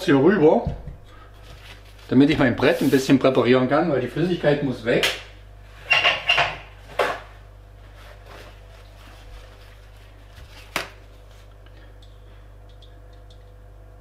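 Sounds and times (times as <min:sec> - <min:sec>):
paper towels rustling: 0:01.4 - 0:03.2, 0:07.8 - 0:11.6.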